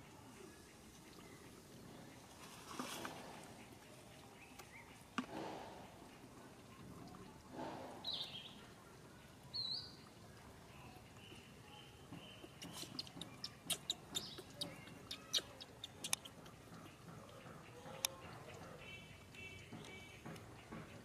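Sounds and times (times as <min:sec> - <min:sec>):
high-pitched animal calls: 0:12.7 - 0:16.4.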